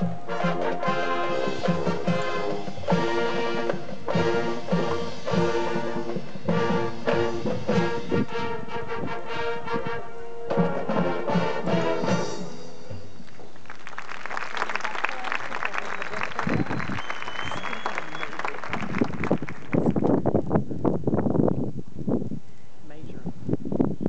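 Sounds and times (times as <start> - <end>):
steady drum beat: 0.0 - 8.3
marching band brass: 0.0 - 13.3
applause: 13.6 - 20.2.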